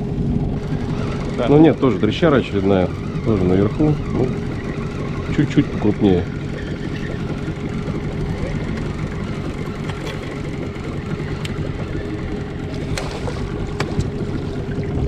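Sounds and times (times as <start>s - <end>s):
outboard motor running: 0.0s - 15.0s.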